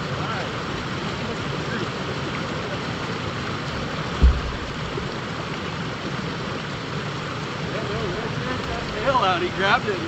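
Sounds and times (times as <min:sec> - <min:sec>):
river water rushing over riffle: 0:00.0 - 0:10.0
low thump: 0:04.1 - 0:05.2.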